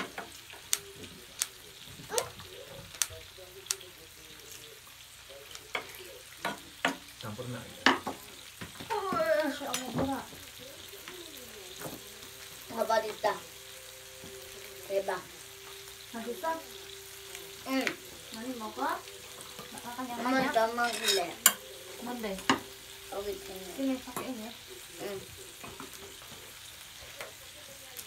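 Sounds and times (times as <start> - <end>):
tongs and chopsticks clicking: 0.0 - 2.3, 20.8 - 21.6
meat sizzling on grill pan: 0.0 - 28.0.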